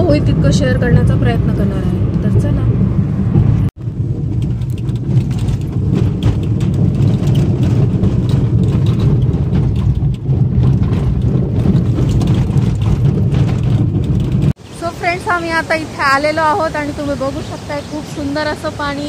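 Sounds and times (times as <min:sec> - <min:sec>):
car tyres and engine rumble: 0:00.0 - 0:19.0
small rattles and knocks: 0:03.3 - 0:14.6.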